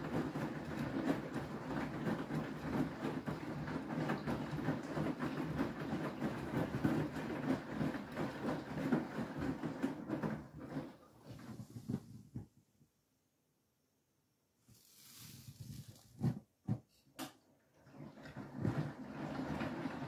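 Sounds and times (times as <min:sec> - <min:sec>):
washing machine drum sloshing: 0:00.0 - 0:12.4, 0:17.7 - 0:20.0
washing machine motor rumble: 0:00.0 - 0:12.4, 0:17.7 - 0:20.0.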